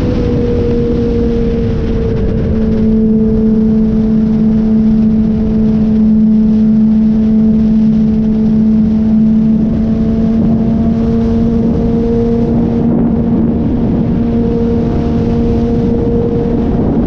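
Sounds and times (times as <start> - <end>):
loud wind: 0.0 - 17.0
motorcycle engine cruising: 0.0 - 17.0
road rush: 0.0 - 17.0.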